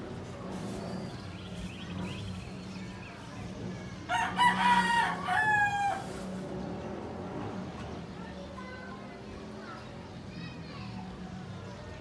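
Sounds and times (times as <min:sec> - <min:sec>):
rooster crowing: 0:04.1 - 0:06.0.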